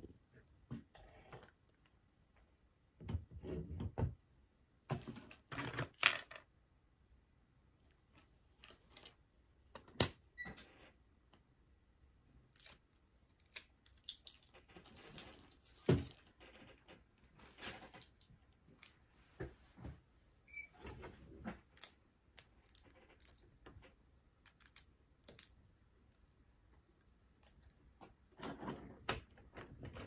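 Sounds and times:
plastic pieces rattling: 0:21.7 - 0:23.6.

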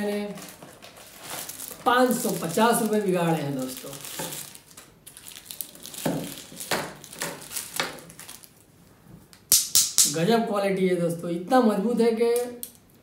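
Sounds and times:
plastic wrapping crinkling: 0:00.0 - 0:08.7.

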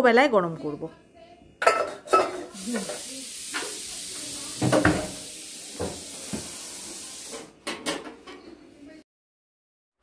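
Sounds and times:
pots knocking and clunking: 0:04.6 - 0:06.6, 0:07.3 - 0:08.5.

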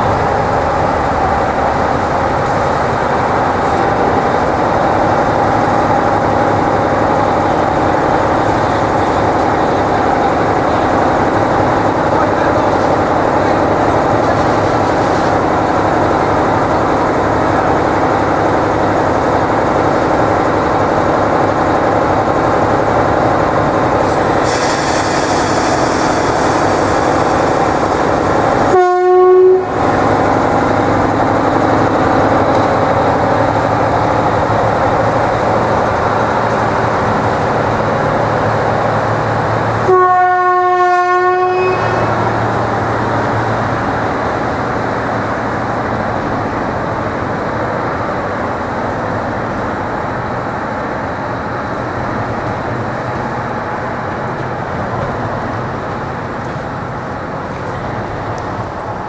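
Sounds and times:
diesel locomotive running: 0:00.0 - 0:59.0
hiss: 0:24.0 - 0:28.3
locomotive horn blast: 0:28.7 - 0:29.8, 0:39.8 - 0:42.2.

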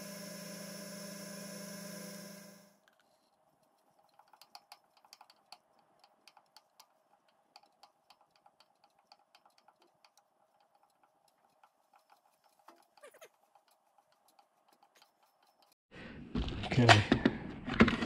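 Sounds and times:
milling spindle whine: 0:00.0 - 0:02.8
irregular ticking: 0:03.6 - 0:15.8.

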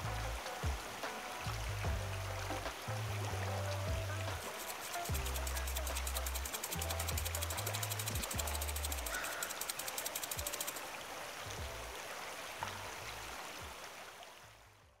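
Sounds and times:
low bass notes: 0:00.0 - 0:04.5, 0:05.1 - 0:09.1
flowing river water: 0:00.0 - 0:15.0
fast ticking beat: 0:03.6 - 0:10.8.

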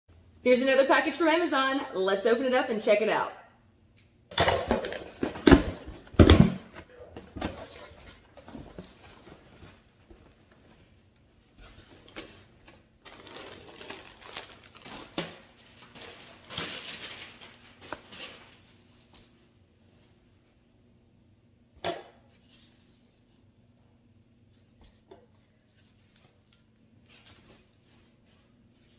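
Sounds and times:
plastic bag crinkling: 0:13.0 - 0:18.6.

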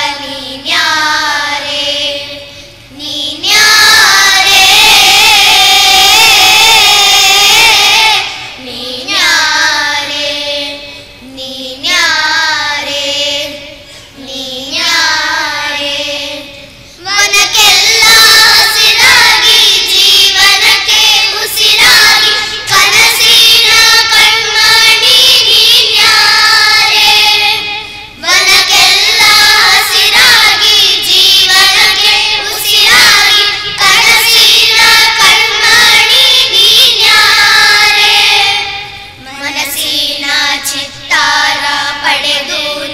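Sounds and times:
children singing in chorus: 0:00.0 - 0:42.9.

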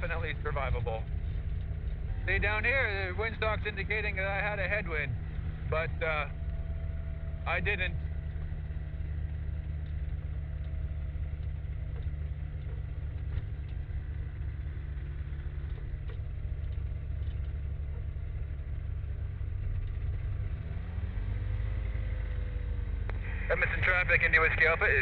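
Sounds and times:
ultralight aircraft engine running: 0:00.0 - 0:25.0.

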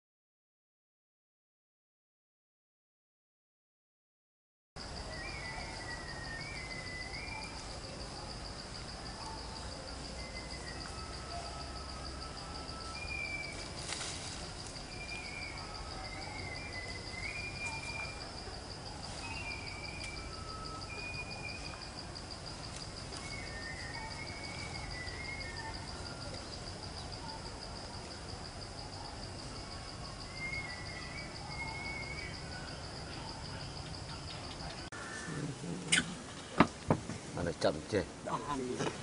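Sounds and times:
high-pitched insect trill: 0:04.8 - 0:35.2
outdoor background noise: 0:04.8 - 0:39.0
whistled bird calls: 0:05.1 - 0:07.6, 0:14.9 - 0:18.2, 0:19.2 - 0:21.7, 0:23.2 - 0:26.3, 0:30.3 - 0:32.6.

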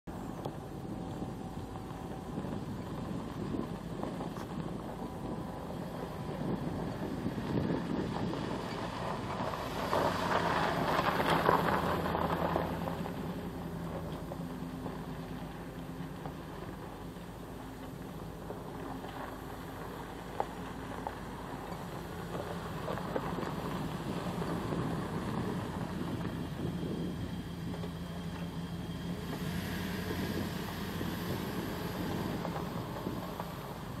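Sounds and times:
engine humming: 0:00.0 - 0:34.0
rushing noise: 0:18.3 - 0:34.0.

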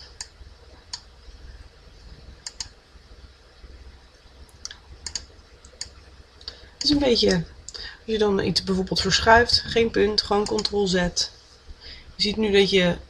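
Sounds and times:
faint low hum: 0:00.0 - 0:13.0
computer mouse clicking: 0:00.9 - 0:01.1, 0:02.4 - 0:02.8, 0:04.5 - 0:07.8, 0:10.4 - 0:10.8.

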